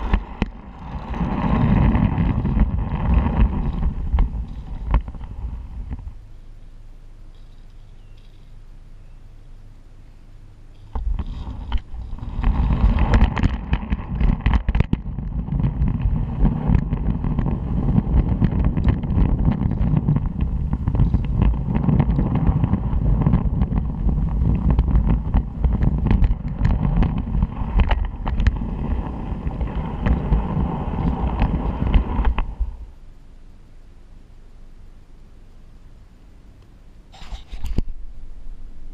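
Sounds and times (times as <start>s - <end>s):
wheels clicking over rail joints: 0.0s - 8.6s, 10.7s - 32.9s.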